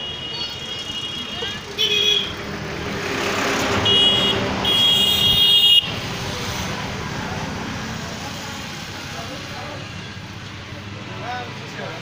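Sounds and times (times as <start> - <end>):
street traffic noise: 0.0 - 12.0
vehicle horn toots: 3.8 - 5.9.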